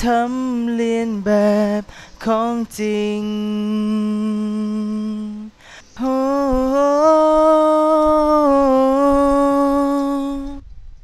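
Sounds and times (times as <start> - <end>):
person breathing in: 1.8 - 2.2, 5.5 - 6.0
person humming a long note: 3.0 - 10.6.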